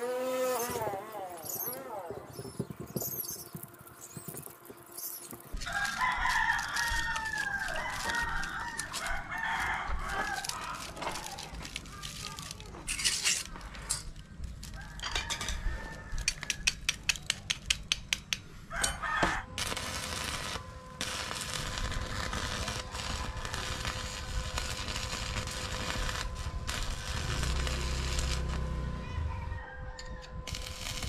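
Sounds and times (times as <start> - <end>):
arc welder crackle and hiss: 0.0 - 15.0, 16.1 - 28.8, 30.5 - 31.0
steel strips clicking: 4.8 - 14.8.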